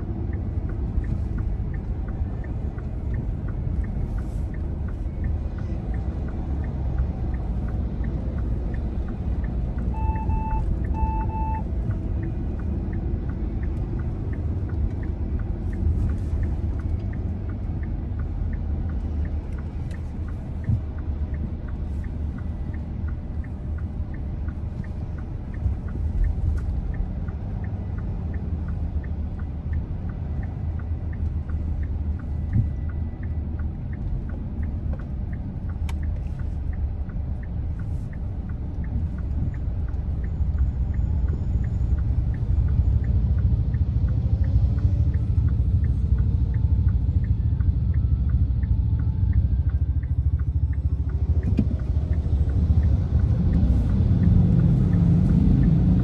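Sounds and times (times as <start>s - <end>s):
vehicle engine and road noise: 0.0s - 56.0s
short beeps: 9.9s - 11.7s.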